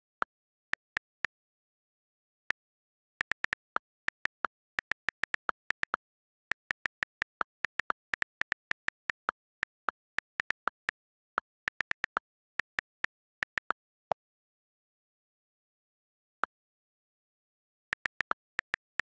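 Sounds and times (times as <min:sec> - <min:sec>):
phone keyboard key clicks: 0:02.6 - 0:13.8.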